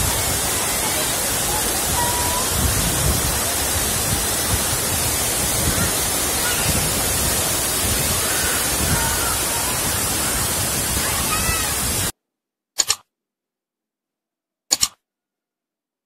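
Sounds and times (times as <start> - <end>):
waterfall rushing: 0.0 - 12.1.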